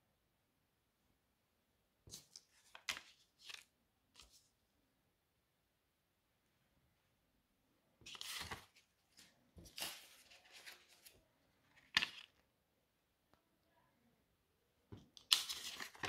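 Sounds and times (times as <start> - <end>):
banknotes rustling: 2.1 - 4.5, 8.1 - 12.4, 15.2 - 16.0.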